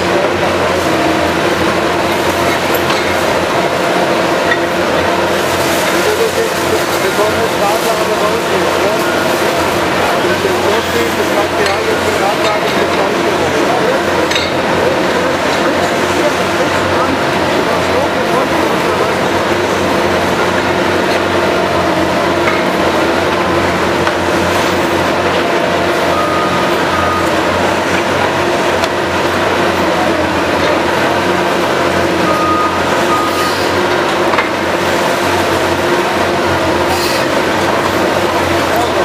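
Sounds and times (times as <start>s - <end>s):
excavator diesel engine and hydraulics: 0.0s - 39.0s
short high beeps: 26.0s - 27.5s, 32.2s - 33.7s.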